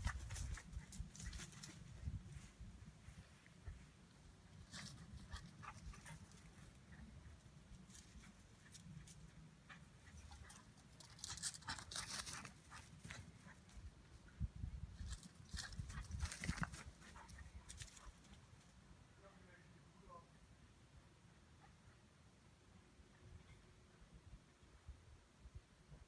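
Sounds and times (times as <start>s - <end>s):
dogs rustling on grass: 0.0s - 6.9s, 15.0s - 18.7s.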